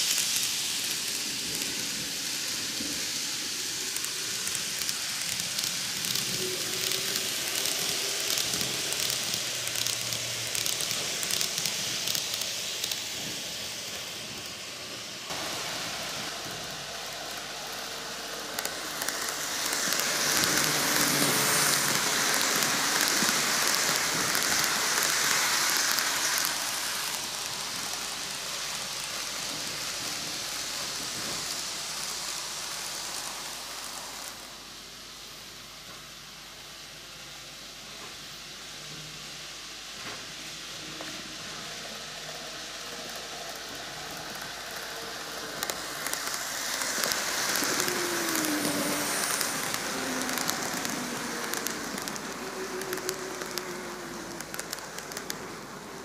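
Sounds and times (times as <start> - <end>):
small wheels rolling on rail: 0.0 - 35.2, 39.8 - 56.0.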